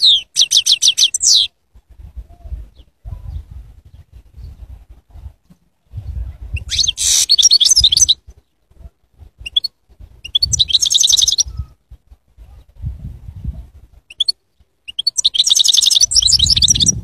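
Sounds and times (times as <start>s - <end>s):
bird twittering: 0.0s - 1.5s, 6.6s - 8.2s, 9.4s - 11.6s, 14.1s - 17.0s.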